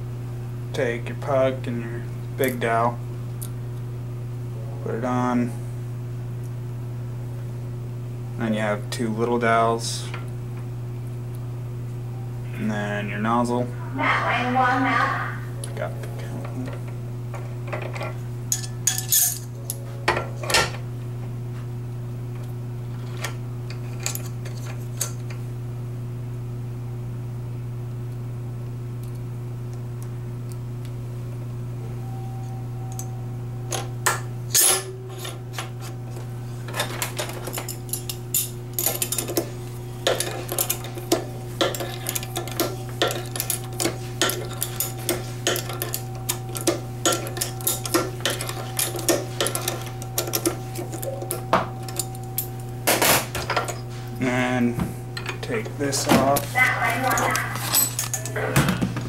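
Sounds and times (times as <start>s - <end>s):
steady low hum: 0.0s - 59.0s
small metal parts clinking: 17.8s - 19.5s, 36.7s - 39.4s, 57.1s - 58.3s.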